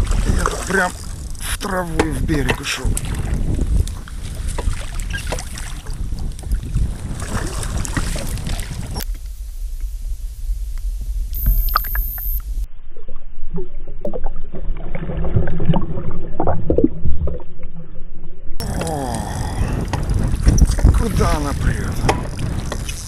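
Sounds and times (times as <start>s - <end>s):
wind on microphone: 0.0s - 12.7s, 18.6s - 23.0s
water sloshing around boat: 1.9s - 9.0s.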